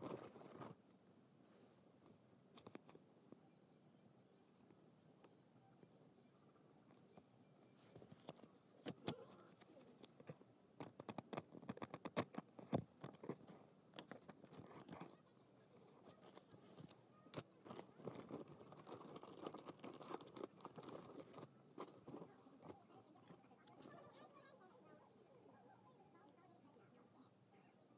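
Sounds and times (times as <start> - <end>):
soft paper rustling: 0.0 - 3.4, 6.6 - 24.8.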